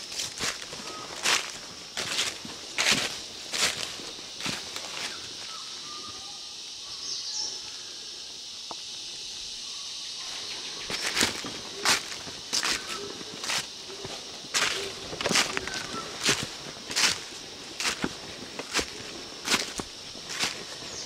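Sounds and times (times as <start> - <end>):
footsteps crunching dry leaves: 0.0 - 5.6, 10.8 - 21.0
forest background hiss: 0.0 - 21.0
faint bird calls: 0.8 - 1.5, 5.0 - 8.2, 9.6 - 16.6.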